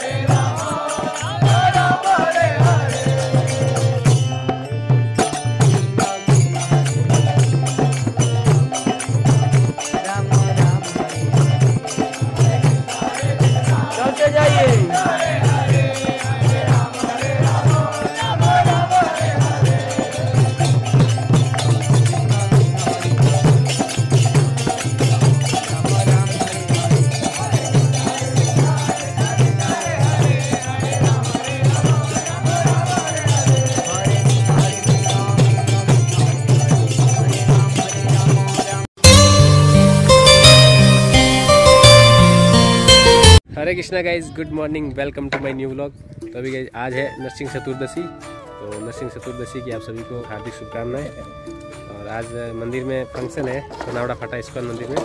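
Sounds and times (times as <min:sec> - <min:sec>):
mantra chanting music: 0:00.0 - 0:04.7, 0:09.8 - 0:23.9, 0:25.2 - 0:38.9, 0:51.9 - 0:55.0
steady drum beat: 0:00.0 - 0:43.4
person singing: 0:38.4 - 0:43.4.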